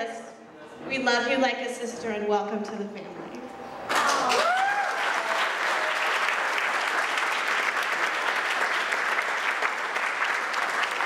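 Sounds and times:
crowd applauding: 3.8s - 11.0s.

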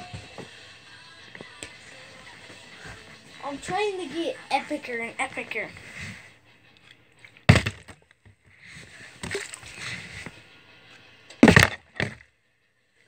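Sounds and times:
sharp thud: 7.5s - 7.9s, 11.4s - 12.1s
liquid sloshing in plastic bottle: 9.2s - 9.8s.

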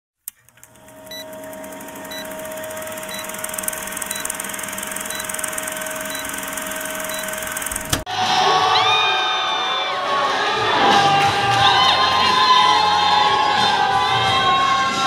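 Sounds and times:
film projector whirring clatter: 0.2s - 8.1s
short beeps: 1.1s - 1.4s, 2.0s - 7.8s.

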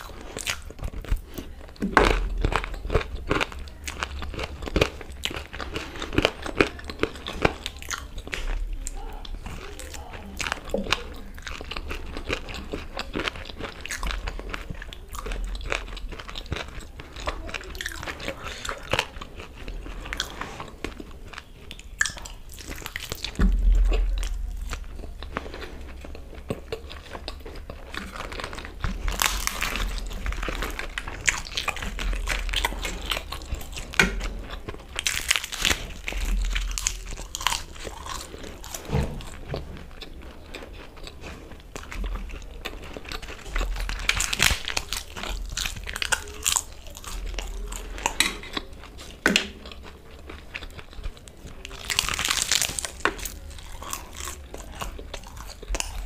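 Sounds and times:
crisp crunching bites: 0.0s - 56.0s
wet chewing: 0.0s - 56.0s
loud low thump: 23.4s - 24.7s.

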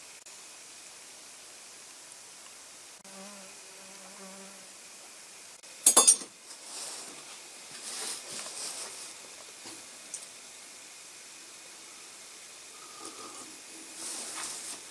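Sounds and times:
soft hissing: 0.0s - 14.9s
fly buzzing: 3.0s - 5.4s
metal dishes clattering: 5.9s - 6.4s.

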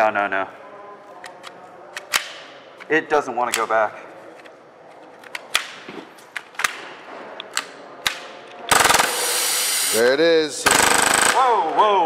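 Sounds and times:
rapid full-auto airsoft burst: 8.7s - 9.9s, 10.6s - 11.4s.

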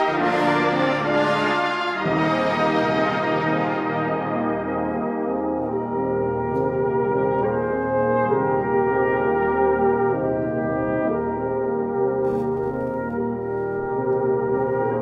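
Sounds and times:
slow brass music: 0.0s - 15.0s.

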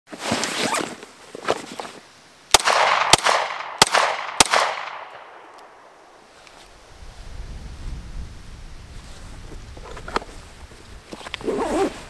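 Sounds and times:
nylon bag rustling: 0.1s - 2.0s, 11.2s - 12.0s
pistol shots echoing: 2.5s - 5.9s.

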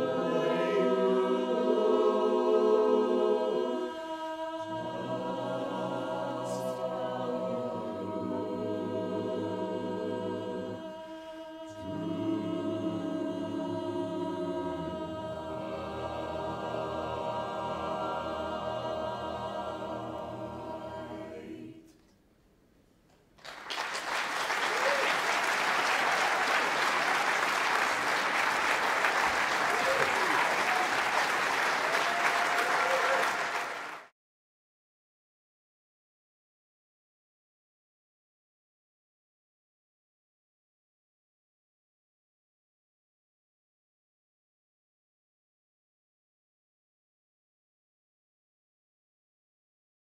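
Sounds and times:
barbershop chorus singing: 0.0s - 21.9s
audience applause: 23.4s - 34.1s.

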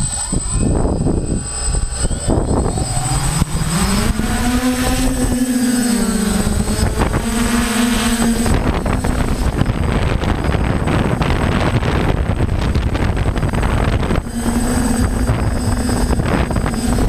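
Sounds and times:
drone rotors humming: 0.0s - 17.0s
thin high whine: 0.0s - 17.0s
wind rumbling on microphone: 0.0s - 17.0s.

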